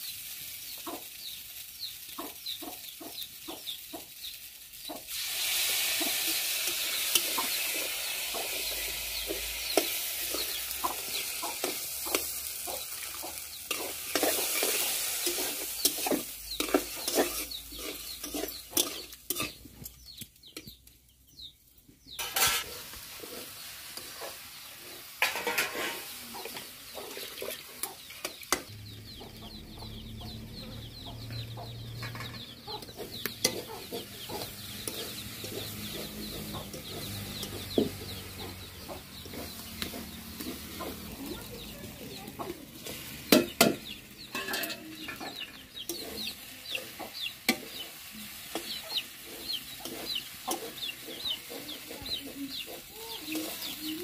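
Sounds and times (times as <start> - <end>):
food frying: 0.0 - 20.8, 22.2 - 54.0
chickens clucking: 0.0 - 54.0
metal spatula clinking and scraping: 6.0 - 20.8, 22.2 - 28.7, 32.0 - 37.8, 42.4 - 54.0.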